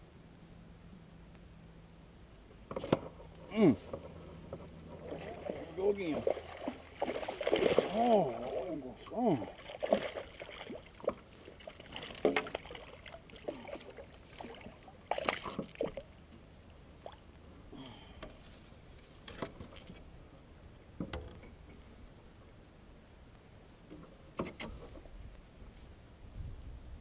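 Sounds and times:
fish splashing in water: 5.0s - 16.1s.

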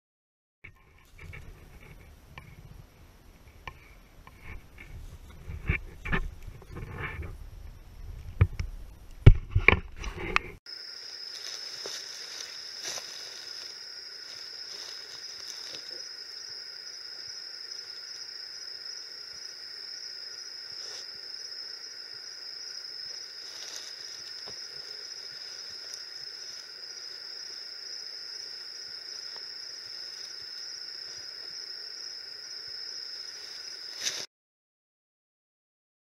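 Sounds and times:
insects chorus: 9.7s - 34.3s.

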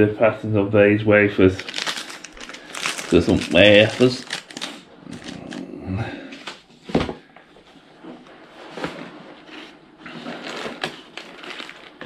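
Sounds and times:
packaging and paper rustling: 1.5s - 5.6s, 8.8s - 12.0s.

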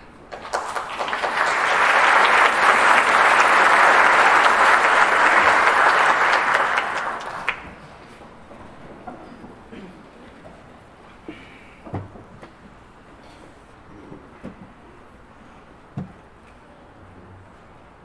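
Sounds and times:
audience applauding: 0.3s - 7.8s.

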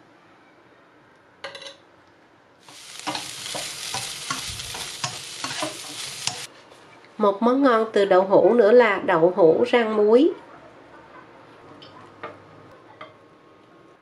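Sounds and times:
food sizzling in a frying pan: 2.6s - 6.5s
chopsticks scraping a pan: 2.7s - 6.5s.

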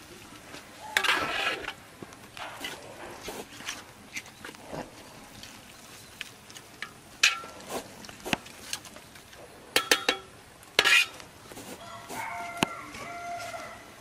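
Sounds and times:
cookware scraping: 0.9s - 1.8s, 9.8s - 11.8s
metal cookware clinking: 6.8s - 7.6s, 9.7s - 11.2s.

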